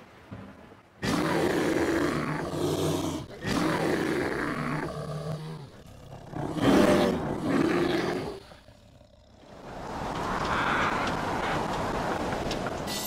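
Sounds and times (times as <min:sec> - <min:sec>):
deep animal roars: 0:01.0 - 0:09.7.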